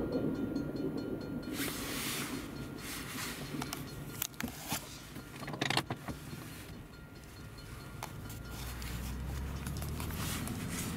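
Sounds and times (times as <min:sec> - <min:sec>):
low engine hum: 0:00.0 - 0:10.9
clicks and rattles in car: 0:03.4 - 0:07.4.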